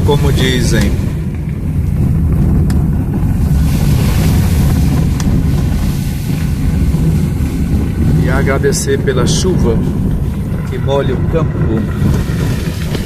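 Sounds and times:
engine and tyres rumbling: 0:00.0 - 0:13.0
tyre hiss on wet road: 0:03.3 - 0:08.8, 0:11.9 - 0:13.0.

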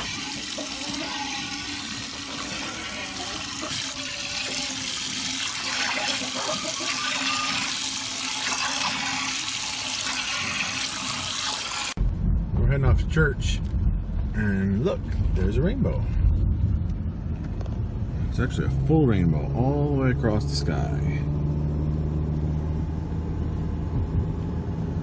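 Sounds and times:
milk squirting into pail: 0:00.0 - 0:12.0.

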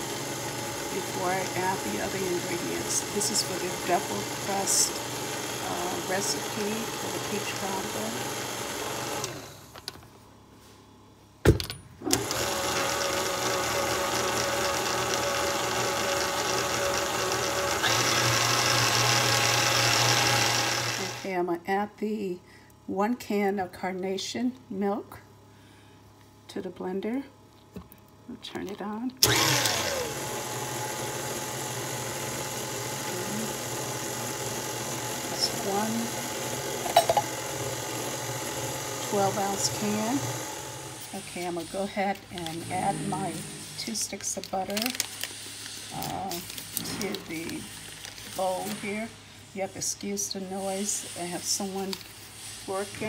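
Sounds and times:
stand mixer motor whining: 0:00.0 - 0:09.6, 0:12.1 - 0:21.2, 0:29.2 - 0:41.0.

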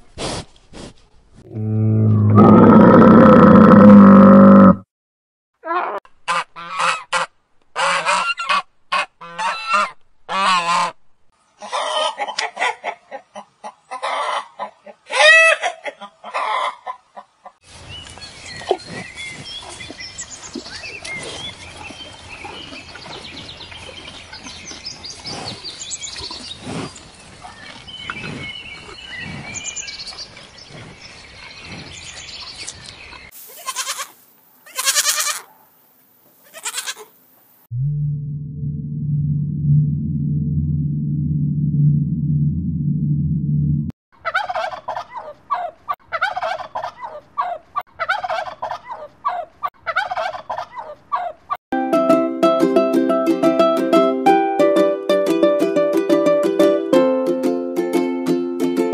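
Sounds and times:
geese honking: 0:06.3 - 0:11.0
young goat bleating: 0:33.5 - 0:35.5, 0:36.4 - 0:37.1.

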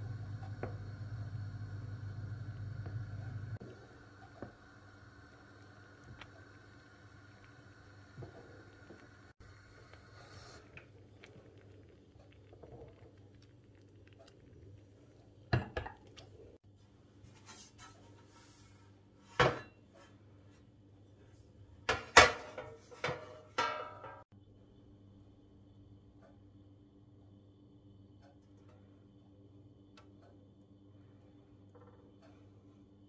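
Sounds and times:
faint low hum: 0:00.0 - 0:21.9
metal baking tray clanking: 0:21.9 - 0:24.2.

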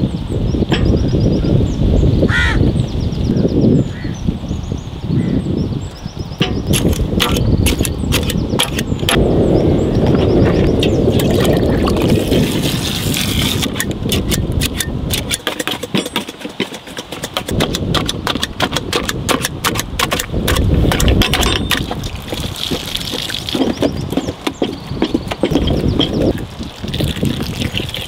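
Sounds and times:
masher pounding in metal pot: 0:06.4 - 0:09.2, 0:10.1 - 0:12.7, 0:13.4 - 0:27.4.

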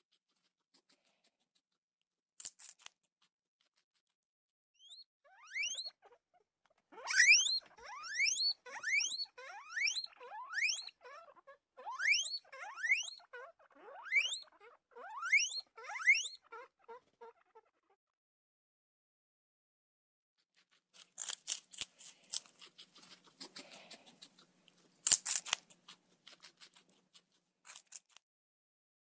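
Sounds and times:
guinea pig squealing: 0:00.0 - 0:01.7, 0:04.8 - 0:18.0, 0:20.5 - 0:28.2.

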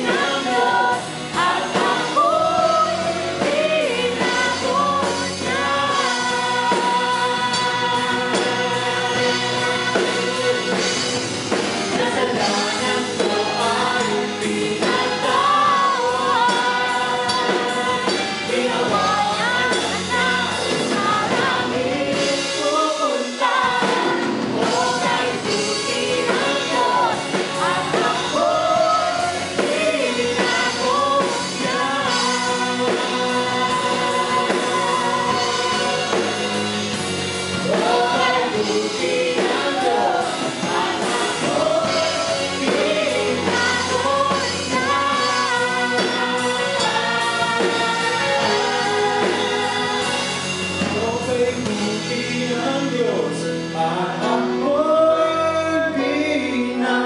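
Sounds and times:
bass guitar: 0:00.0 - 0:57.0
drums: 0:00.0 - 0:57.0
singers on microphones: 0:00.0 - 0:57.0
worship band playing: 0:00.0 - 0:57.0.

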